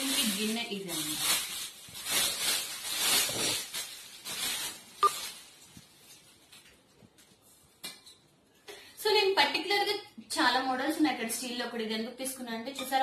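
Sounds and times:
plastic wrapping crinkling: 0:00.0 - 0:07.8.

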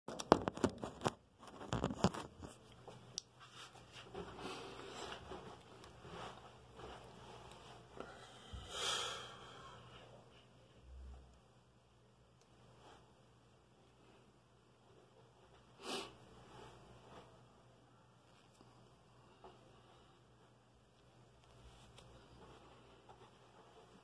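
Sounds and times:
clothing rustling: 0:00.5 - 0:08.0, 0:20.4 - 0:24.0
breathy hiss: 0:08.0 - 0:09.9.

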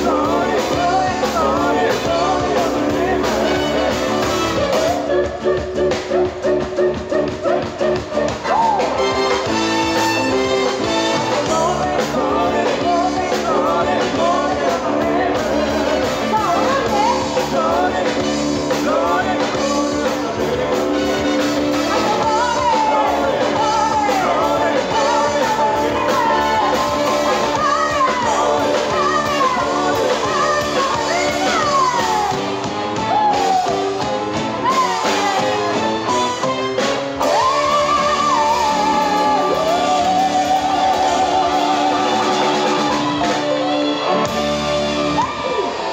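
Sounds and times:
live band playing: 0:00.0 - 0:45.9
woman singing into a microphone: 0:22.0 - 0:32.4.

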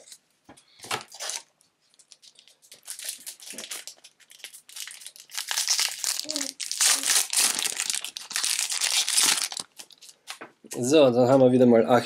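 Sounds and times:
foil wrapper crinkling: 0:00.9 - 0:10.4.

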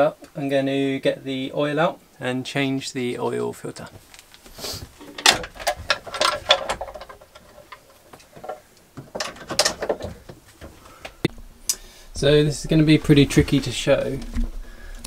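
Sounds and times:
wooden panel knocking and clattering: 0:05.0 - 0:07.8, 0:08.4 - 0:10.8.

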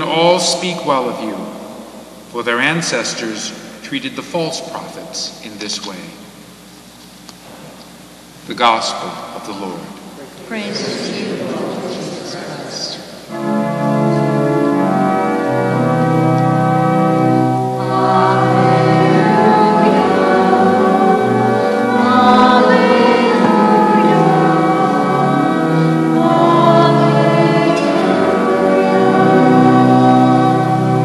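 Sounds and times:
organ playing held chords: 0:00.0 - 0:06.4, 0:08.4 - 0:31.0
voices singing: 0:08.6 - 0:13.3, 0:17.7 - 0:31.0.

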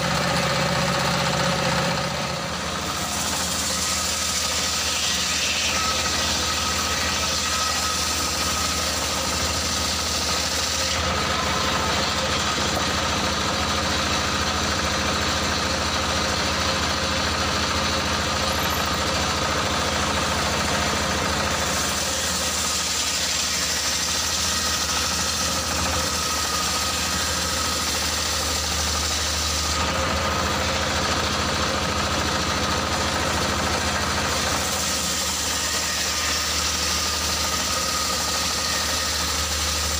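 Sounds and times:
diesel engine running: 0:00.0 - 0:04.8, 0:05.8 - 0:35.4
saw blade hissing through wood: 0:02.8 - 0:11.3.

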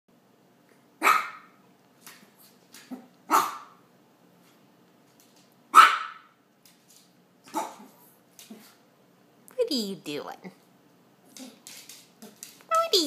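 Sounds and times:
small dog yapping: 0:01.0 - 0:01.6, 0:02.9 - 0:03.8, 0:05.7 - 0:06.3, 0:07.5 - 0:07.9.

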